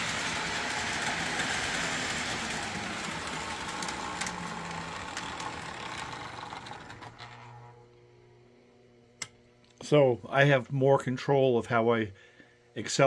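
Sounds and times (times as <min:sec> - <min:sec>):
model train motor whir: 0:00.0 - 0:07.8
low steady hum: 0:00.1 - 0:13.0.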